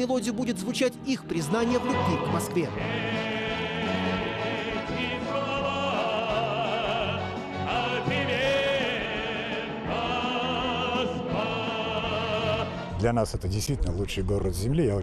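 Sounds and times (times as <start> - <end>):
orchestral accompaniment: 0.0 - 14.1
classical singing with vibrato: 1.4 - 12.9.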